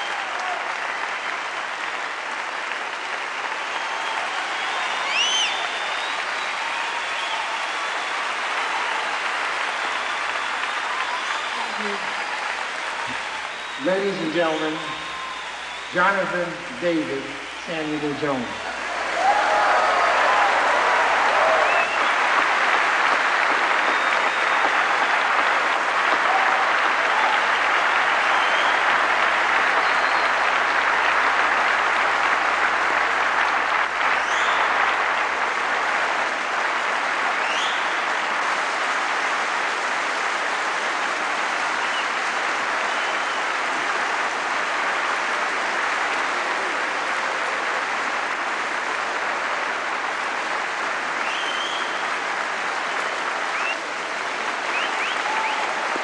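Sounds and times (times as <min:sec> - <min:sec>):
short cheers: 0:00.0 - 0:01.8, 0:03.0 - 0:31.2, 0:51.2 - 0:56.0
audience applauding: 0:00.0 - 0:56.0.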